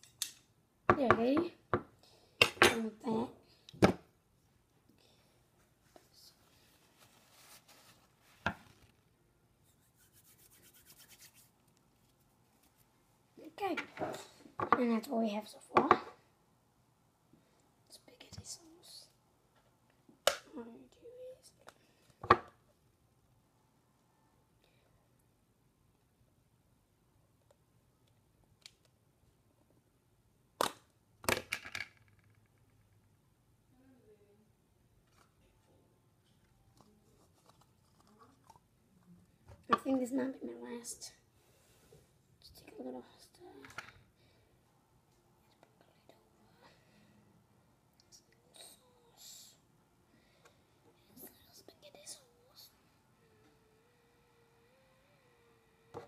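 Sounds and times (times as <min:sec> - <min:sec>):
faint rubbing and scraping: 0:05.6 - 0:14.3.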